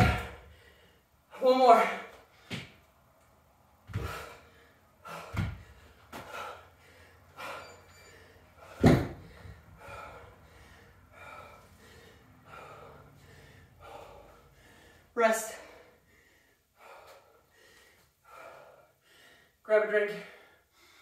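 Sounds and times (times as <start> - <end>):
dumbbells thudding on rubber mat: 0.0 - 0.5, 3.9 - 4.4, 5.1 - 6.4, 8.6 - 9.5
heavy gasping breaths: 3.9 - 19.6.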